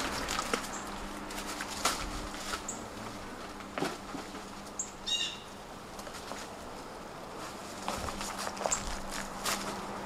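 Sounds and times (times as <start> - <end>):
footsteps on dry twigs: 0.0 - 5.2, 5.9 - 10.0
high bird chirps: 4.8 - 5.5.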